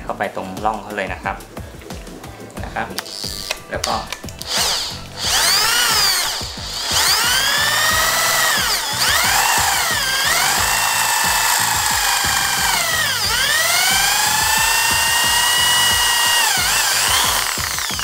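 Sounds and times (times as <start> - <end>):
power drill drilling into rivet: 3.0 - 3.6, 4.4 - 18.0.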